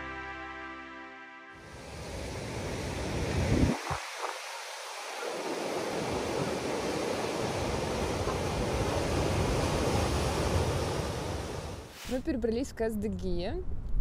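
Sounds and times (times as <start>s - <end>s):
wind rumbling on microphone: 1.8s - 11.8s, 13.4s - 14.0s
surf breaking over rocks: 1.8s - 11.9s.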